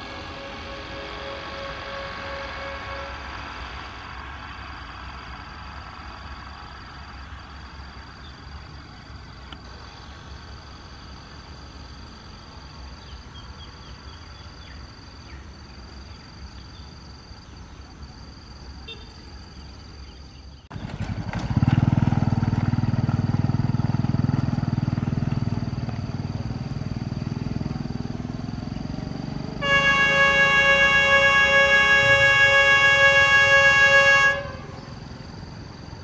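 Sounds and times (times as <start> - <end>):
locomotive horn blast: 0.0 - 4.0, 29.6 - 34.9
locomotive engine rumble: 0.0 - 14.7, 20.7 - 36.0
countryside background: 0.0 - 36.0.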